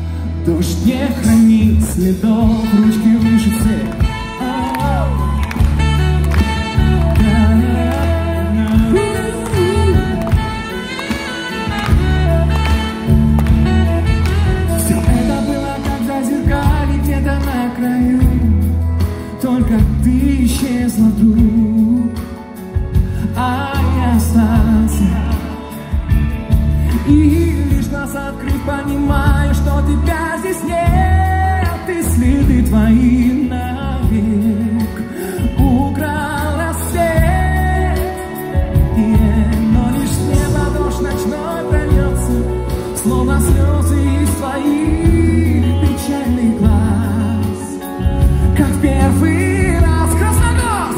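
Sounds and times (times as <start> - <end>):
band with heavy bass line: 0.0 - 50.9
man singing pop ballad: 0.0 - 50.9.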